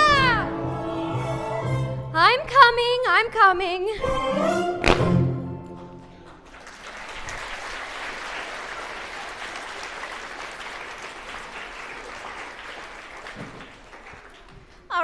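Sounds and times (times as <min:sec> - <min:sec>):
audience applauding: 0:06.3 - 0:14.9.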